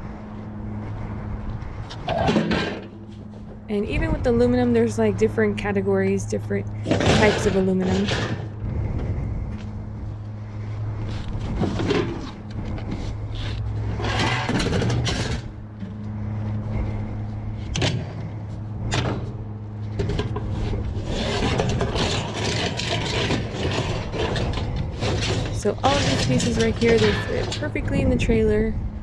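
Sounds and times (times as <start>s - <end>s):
steady low hum: 0.0s - 29.0s
metal clanks: 2.0s - 3.3s, 14.0s - 15.9s, 21.2s - 28.0s
sheet metal scraping: 13.0s - 15.5s, 19.9s - 28.1s.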